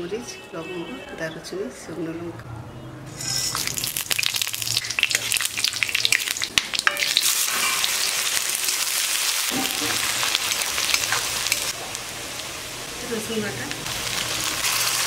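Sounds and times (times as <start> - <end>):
onions sizzling in oil: 3.1 - 15.0
spices crackling in hot oil: 3.1 - 15.0
metal spatula stirring: 6.8 - 8.1, 9.5 - 11.8.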